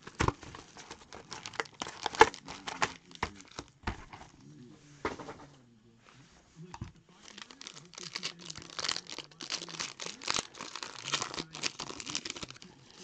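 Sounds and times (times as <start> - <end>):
foil wrapper tearing and crinkling: 0.0 - 3.7, 7.2 - 13.0.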